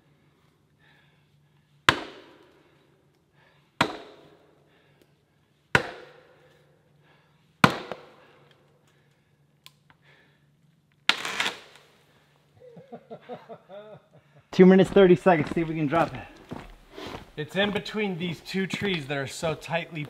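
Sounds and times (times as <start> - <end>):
axe striking tree trunk: 1.9 - 2.5, 3.8 - 4.3, 5.8 - 6.4, 7.6 - 8.2.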